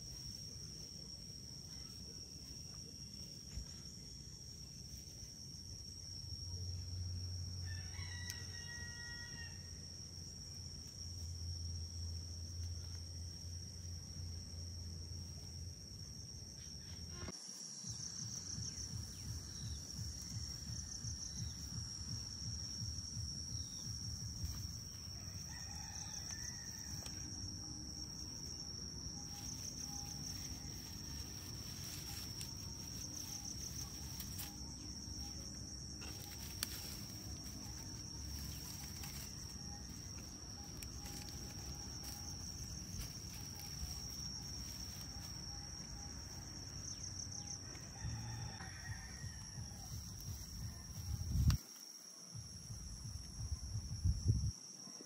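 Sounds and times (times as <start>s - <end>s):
rooster crowing: 7.6s - 9.9s, 25.0s - 27.6s, 47.3s - 49.9s
high-pitched insect drone: 16.2s - 51.7s.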